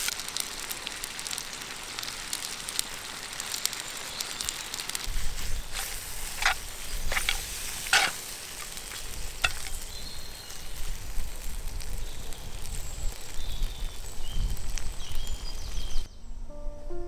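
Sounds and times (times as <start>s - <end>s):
food sizzling in a skillet: 0.0s - 16.1s
metal tongs scraping a pan: 5.4s - 9.8s.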